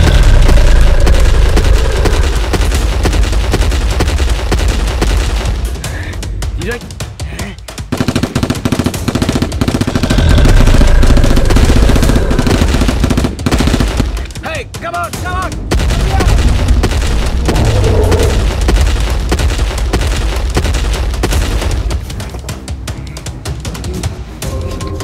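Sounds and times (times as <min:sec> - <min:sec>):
heavy low booms: 0:00.0 - 0:04.0, 0:09.9 - 0:13.1, 0:15.6 - 0:20.6
rapid automatic gunfire: 0:00.0 - 0:05.8, 0:07.8 - 0:14.5, 0:15.7 - 0:22.1.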